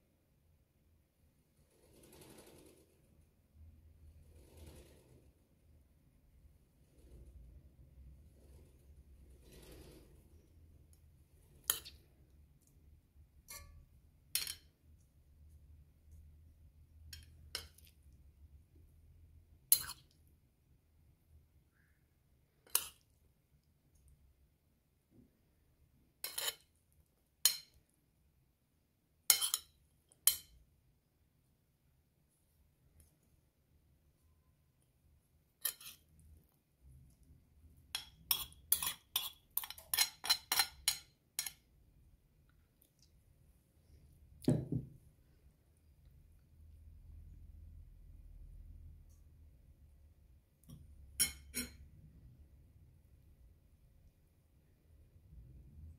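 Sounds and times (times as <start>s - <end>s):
metal spoon clinking on dishes: 26.2s - 26.6s, 27.4s - 27.8s, 29.3s - 30.6s, 35.6s - 36.0s, 37.9s - 41.6s, 50.7s - 51.9s.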